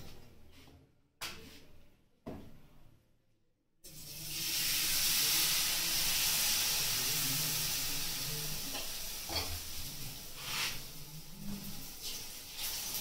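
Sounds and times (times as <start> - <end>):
batter sizzling on a griddle: 3.9 - 13.0.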